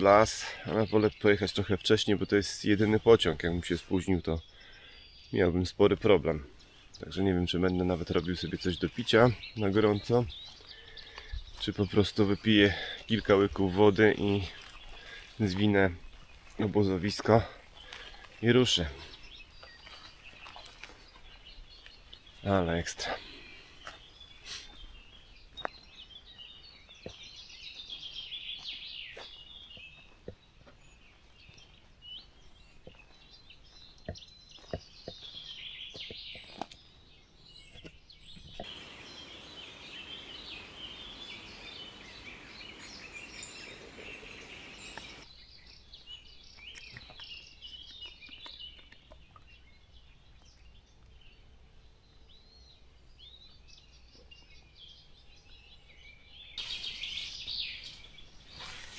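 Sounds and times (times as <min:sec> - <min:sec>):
songbirds chirping: 0:00.0 - 0:58.9
steady hiss: 0:38.6 - 0:45.2, 0:56.6 - 0:58.9.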